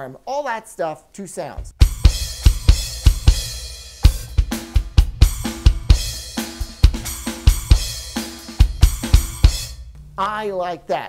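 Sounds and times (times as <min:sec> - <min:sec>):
electronic drum kit playing: 0:01.6 - 0:10.5.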